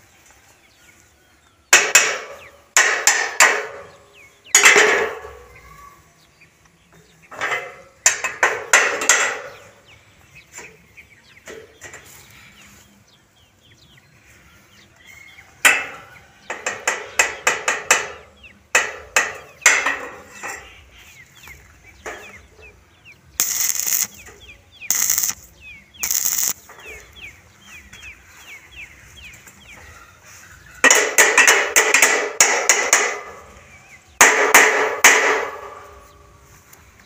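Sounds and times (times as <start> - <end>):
hammer striking steel: 1.8 - 3.9, 23.4 - 24.1, 24.9 - 25.4, 30.9 - 33.3, 34.2 - 35.9
small birds chirping: 3.7 - 8.1, 9.1 - 30.8
welding arc crackling hiss: 23.4 - 24.2, 24.9 - 26.7.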